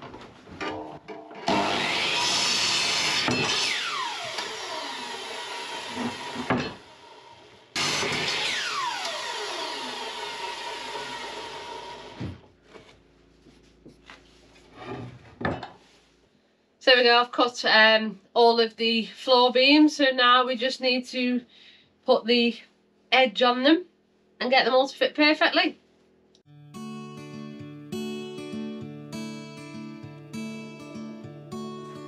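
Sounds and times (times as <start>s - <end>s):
mitre saw cutting wood: 1.4s - 12.4s
saw blade winding down: 1.5s - 12.2s.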